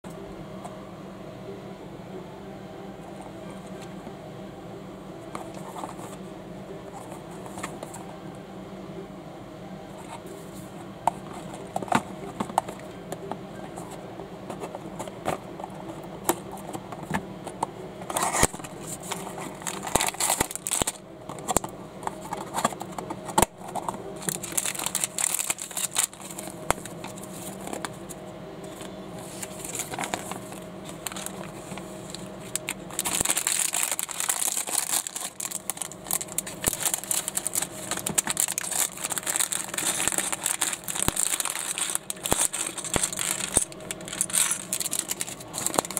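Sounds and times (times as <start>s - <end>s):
plastic bag crinkling: 18.1s - 28.0s, 29.3s - 45.9s.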